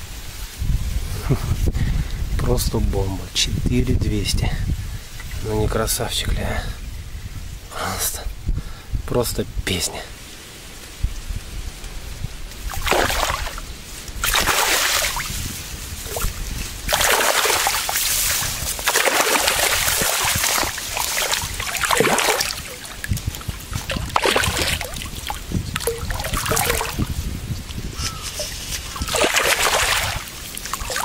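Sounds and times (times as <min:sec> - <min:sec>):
fish splashing in shallow water: 0:12.6 - 0:27.3, 0:28.1 - 0:31.0.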